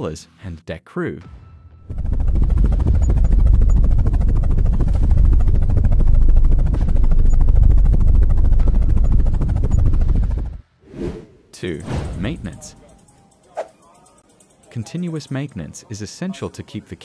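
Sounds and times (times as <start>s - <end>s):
helicopter rotor beat: 1.9s - 10.6s, 12.1s - 16.5s.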